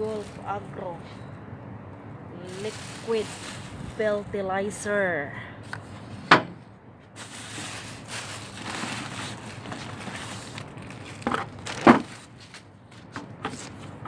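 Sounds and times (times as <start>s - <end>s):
plastic crinkling: 0.0s - 0.8s, 2.4s - 4.2s, 7.2s - 12.7s.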